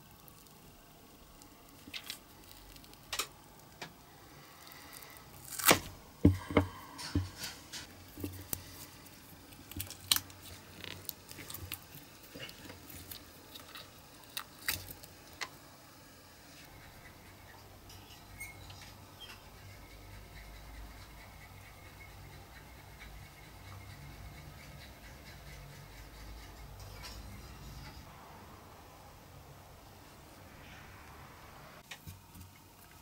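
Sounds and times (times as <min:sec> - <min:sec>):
rubbery squishes of silicone mold: 0:00.0 - 0:06.6, 0:07.9 - 0:15.6.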